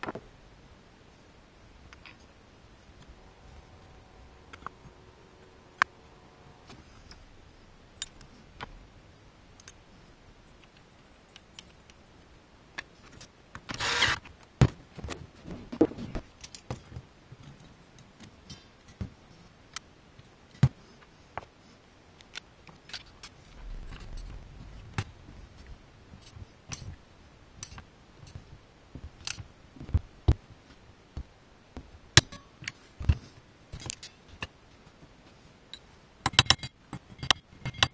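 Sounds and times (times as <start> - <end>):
cordless power driver burst: 13.8 - 14.2.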